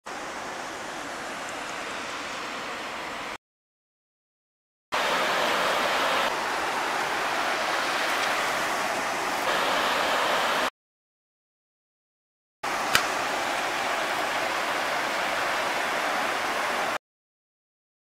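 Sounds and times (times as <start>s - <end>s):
water rushing over rocks: 5.0s - 10.7s, 12.6s - 17.0s.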